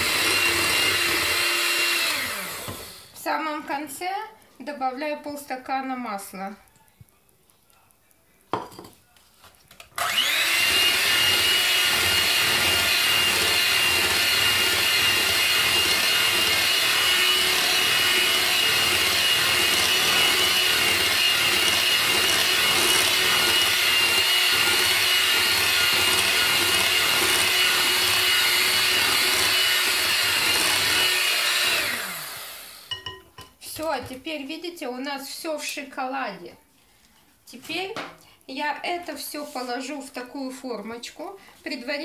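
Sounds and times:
electric hand mixer whining: 0.0s - 3.1s, 10.0s - 33.1s.

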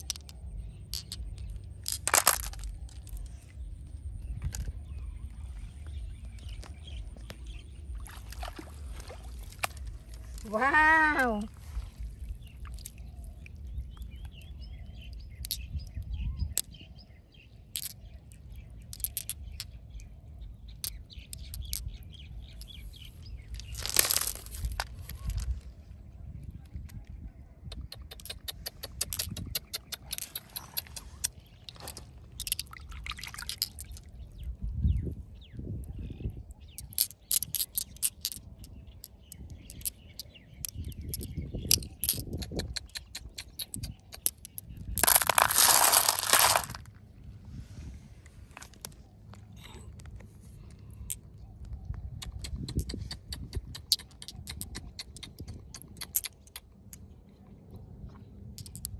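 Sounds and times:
stones clicking: 0.0s - 3.4s, 15.3s - 16.7s, 17.6s - 19.8s, 20.7s - 22.9s, 23.5s - 25.6s, 27.8s - 34.2s, 36.8s - 47.0s, 52.2s - 57.0s, 58.6s - 58.9s
small birds chirping: 0.0s - 47.0s, 48.3s - 58.9s
splashes in shallow water: 7.9s - 10.1s.

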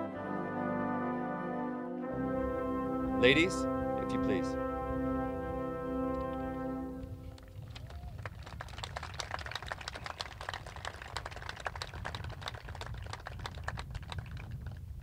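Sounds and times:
light applause: 6.0s - 15.0s.

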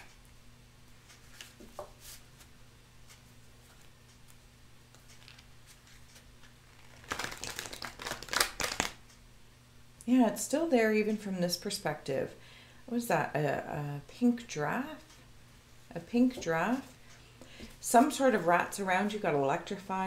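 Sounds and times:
cards riffling and rustling: 5.0s - 9.0s.

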